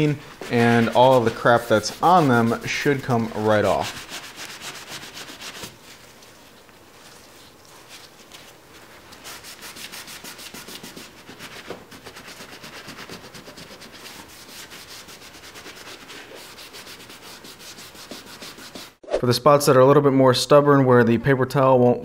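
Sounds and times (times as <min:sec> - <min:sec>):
paper towel wiping metal blade: 0:00.0 - 0:05.8, 0:07.9 - 0:19.0.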